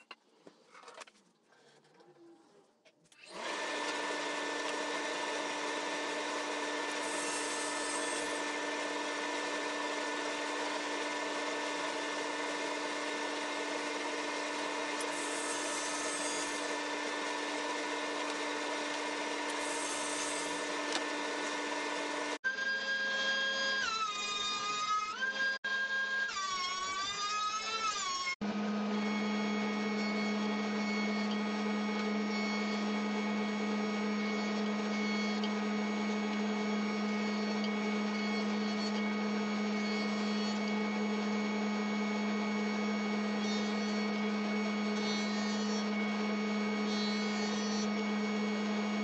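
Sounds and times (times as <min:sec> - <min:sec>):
table saw running: 0:03.2 - 0:49.0.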